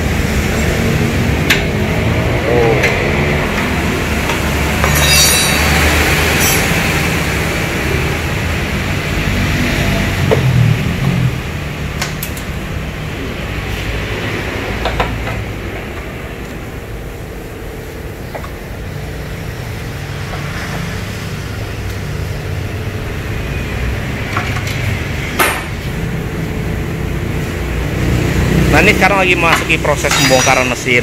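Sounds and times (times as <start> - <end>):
hand tools clinking on metal: 4.8 - 7.0, 29.5 - 31.0
sharp metal clack: 4.8 - 7.1, 29.5 - 30.9.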